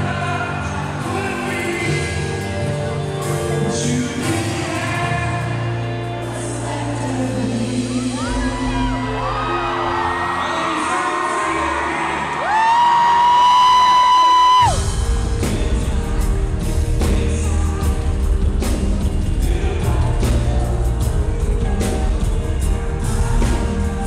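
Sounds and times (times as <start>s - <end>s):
man singing: 0.0s - 13.8s, 14.6s - 24.0s
live pop band playing: 0.0s - 24.0s
audience screaming: 8.0s - 14.9s.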